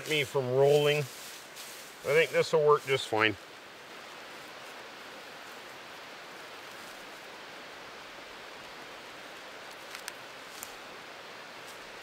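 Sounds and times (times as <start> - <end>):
mountain creek rushing: 0.0 - 12.0.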